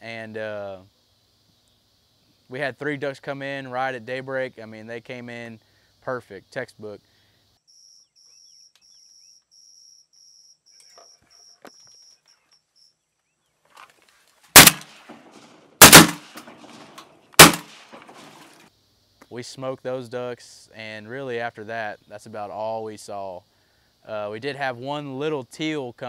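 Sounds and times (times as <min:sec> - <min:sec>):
shotgun blasts: 0:14.6 - 0:18.5.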